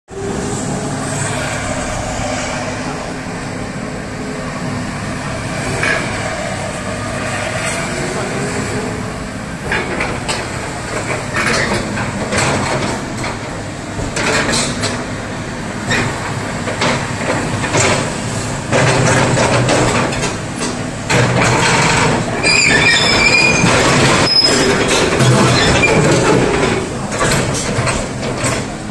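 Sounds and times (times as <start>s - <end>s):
excavator diesel engine: 0.1s - 28.9s
metal clanks and knocks: 9.6s - 15.2s, 15.9s - 28.9s.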